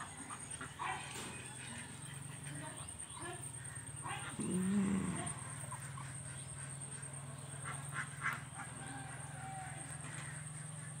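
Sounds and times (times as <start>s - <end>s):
ducks quacking: 1.6s - 8.9s, 10.0s - 11.0s.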